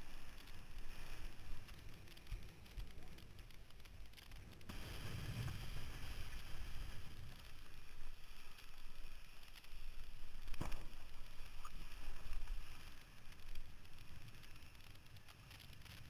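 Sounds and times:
water hissing and splashing: 4.7s - 16.0s.

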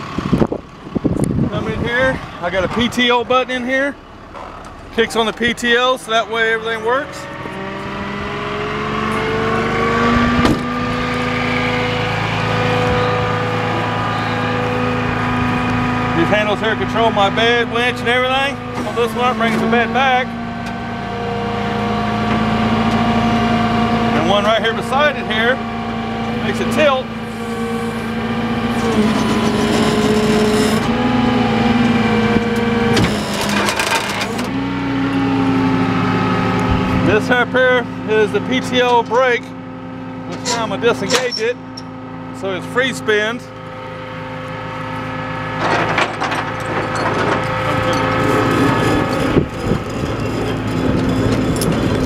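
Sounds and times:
hydraulic pump whining: 0.0s - 52.0s
truck engine running: 0.0s - 52.0s
clatter: 33.0s - 34.5s, 45.6s - 52.0s.

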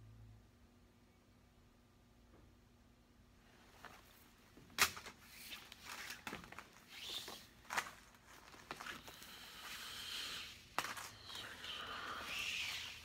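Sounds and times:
cord rustling: 3.6s - 13.0s
cord swishing through hands: 3.8s - 13.0s.

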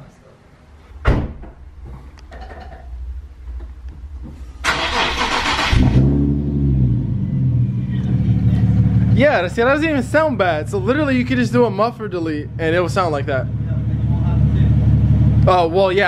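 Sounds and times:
car engine cranking: 4.6s - 9.1s
car engine revving and idling: 4.7s - 15.8s.

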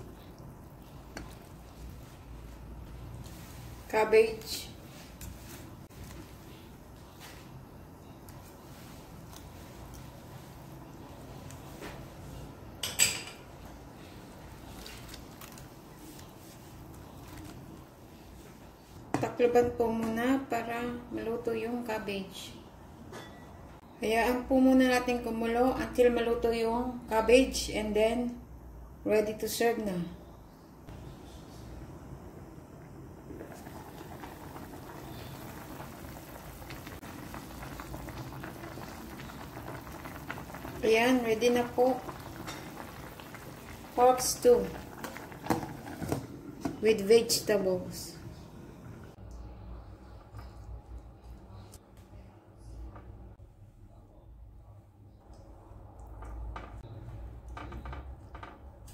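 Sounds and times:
broth boiling and bubbling: 0.0s - 19.5s, 30.8s - 51.9s, 55.0s - 58.9s.

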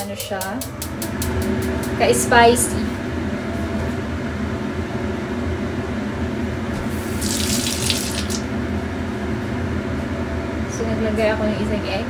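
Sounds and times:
steady low hum: 0.0s - 12.0s
kitchen tap running: 7.0s - 8.5s.

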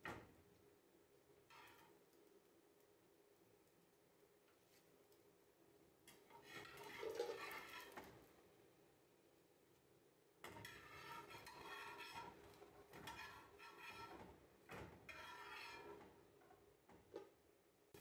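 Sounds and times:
spatula scraping frying pan: 6.3s - 8.0s, 10.5s - 14.4s, 15.0s - 16.2s.

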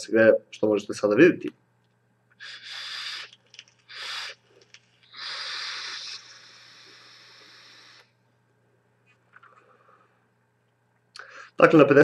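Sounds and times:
airy hiss of vaping draw: 2.4s - 8.1s.

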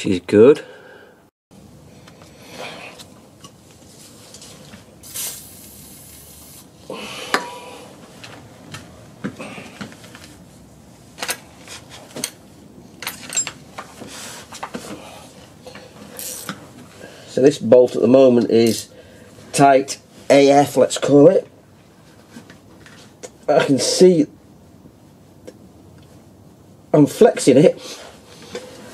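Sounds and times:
short hiss: 5.0s - 6.7s.

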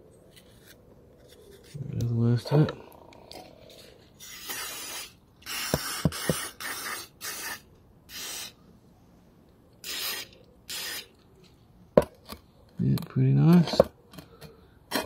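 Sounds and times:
aerosol spray bursts: 4.2s - 8.6s, 9.8s - 11.1s.

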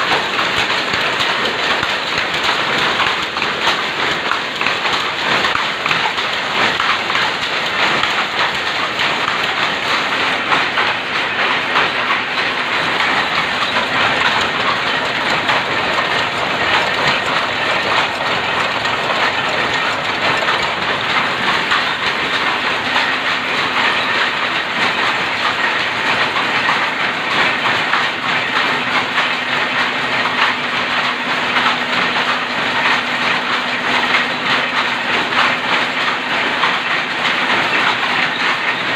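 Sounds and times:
looms clattering: 0.0s - 38.9s.

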